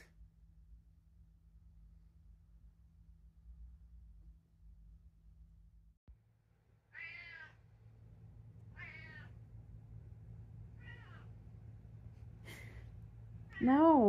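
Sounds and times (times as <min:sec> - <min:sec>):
cat meowing: 0:06.9 - 0:07.6, 0:08.7 - 0:09.4, 0:10.8 - 0:11.3.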